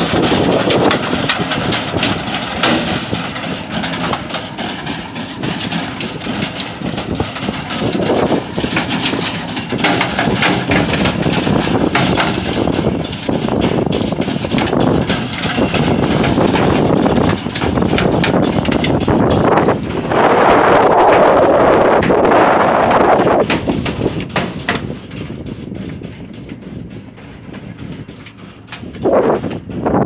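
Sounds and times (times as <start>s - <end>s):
tractor engine running under load: 0.0s - 30.0s.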